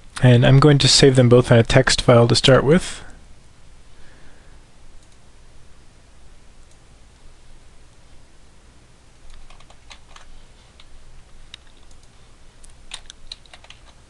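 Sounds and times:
keyboard keystrokes: 9.3s - 10.3s, 11.6s - 14.0s.

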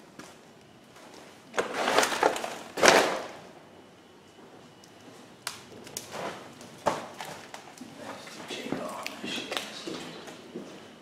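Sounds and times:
crunching and scraping on debris: 1.1s - 3.4s.

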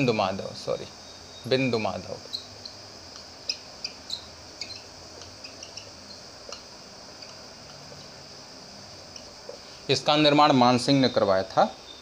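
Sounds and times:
marker squeaking on whiteboard: 1.1s - 8.2s.

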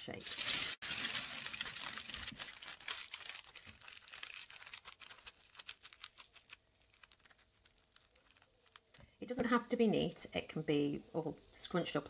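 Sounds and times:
aluminium foil crinkling: 0.0s - 9.0s.

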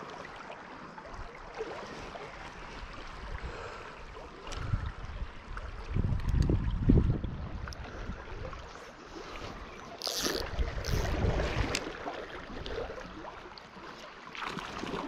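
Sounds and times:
wind on microphone: 4.5s - 13.0s.

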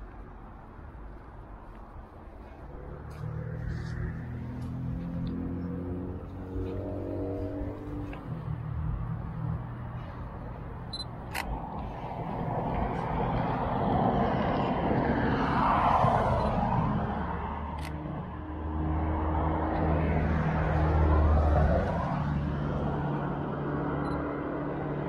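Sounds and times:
cars passing: 0.0s - 25.0s
low engine hum: 0.0s - 25.0s.

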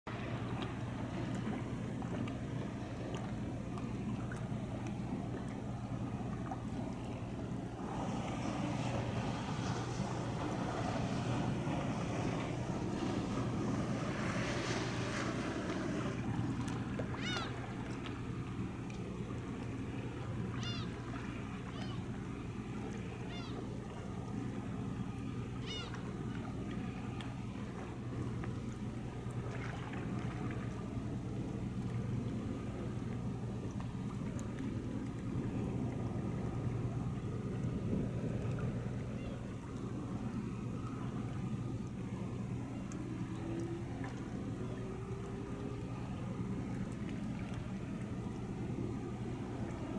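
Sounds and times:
waterside noise: 0.0s - 49.9s
ship engines humming: 0.1s - 49.9s
wind on microphone: 6.1s - 18.4s.

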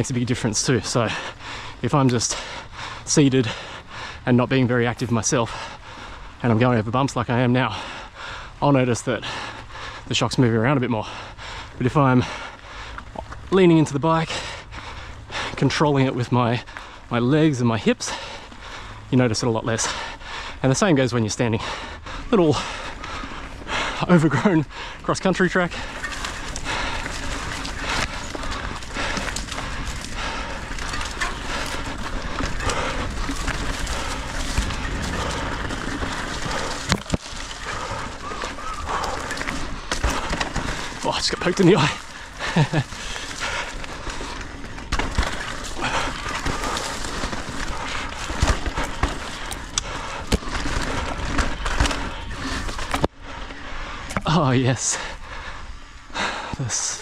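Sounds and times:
bike tyres crunching on dirt: 0.0s - 57.0s
brush scraping against bike: 25.8s - 53.1s.

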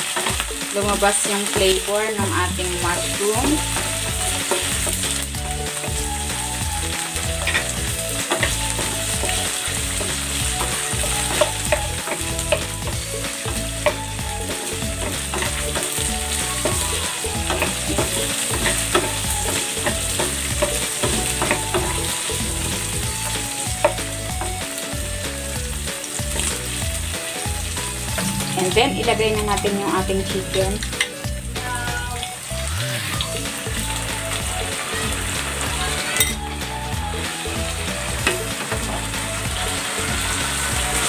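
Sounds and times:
mushrooms sizzling in hot oil: 0.0s - 41.0s
wooden spatula scraping a pan: 7.0s - 24.6s.

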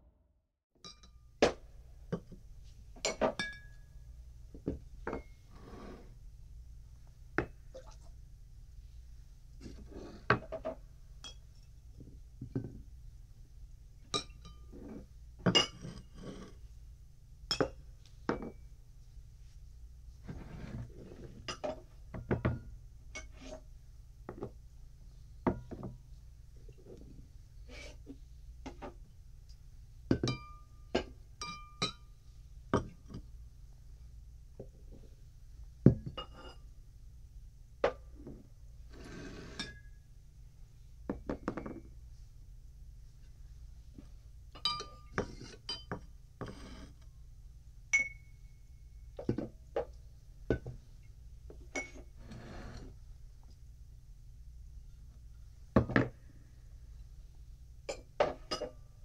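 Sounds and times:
glassware clinking: 0.8s - 1.2s, 3.0s - 3.8s, 15.5s - 16.1s, 17.5s - 18.6s, 30.1s - 32.1s, 44.6s - 46.6s, 48.0s - 48.4s, 51.7s - 52.1s, 57.9s - 58.8s
low steady hum: 0.8s - 59.0s
glass sliding scrapes: 5.5s - 6.2s, 20.2s - 21.4s, 38.9s - 39.8s, 51.9s - 53.0s.

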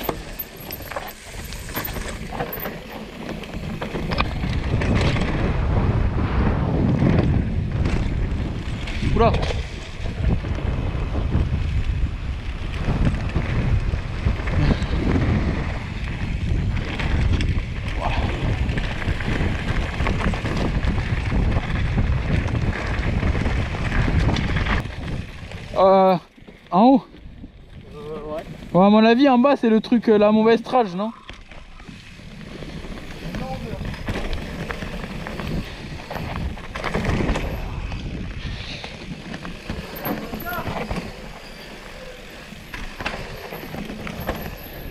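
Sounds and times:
bike knocks and rattles: 0.0s - 6.0s, 31.2s - 44.9s
wind buffeting microphone: 0.0s - 25.8s, 31.5s - 44.9s
tyres rumbling on rocky ground: 0.0s - 27.0s, 27.6s - 44.9s
bike rattling: 0.0s - 44.9s.

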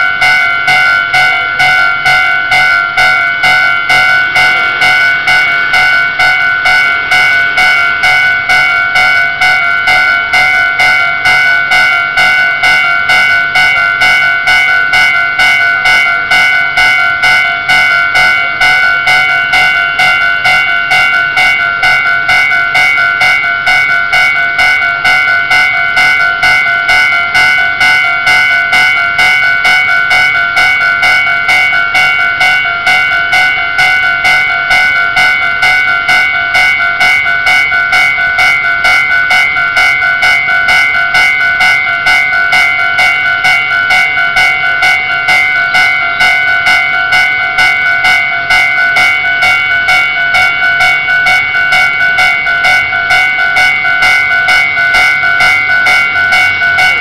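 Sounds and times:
level-crossing warning bell ringing: 0.0s - 57.0s.

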